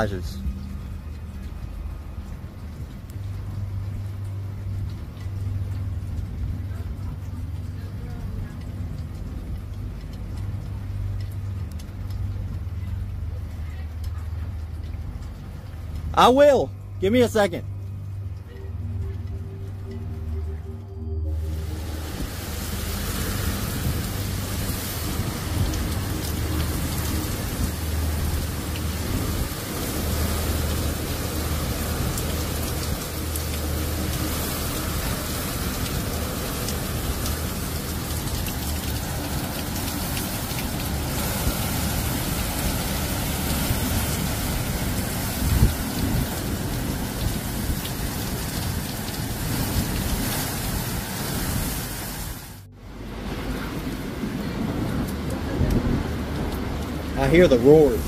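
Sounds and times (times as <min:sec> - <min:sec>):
deep low rumble: 0:00.0 - 0:16.1, 0:16.7 - 0:50.3
heavy rain hissing: 0:21.3 - 0:58.0
strong wind: 0:34.0 - 0:58.0.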